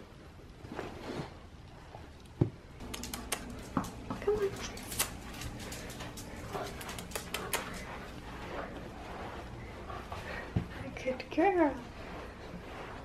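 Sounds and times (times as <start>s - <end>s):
dog claws clicking on tiled floor: 2.3s - 8.5s.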